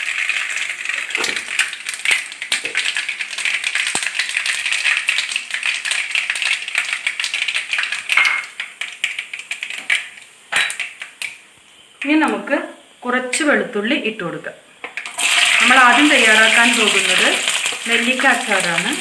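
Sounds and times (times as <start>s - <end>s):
seeds sizzling in hot oil: 0.0s - 12.2s, 14.9s - 19.0s.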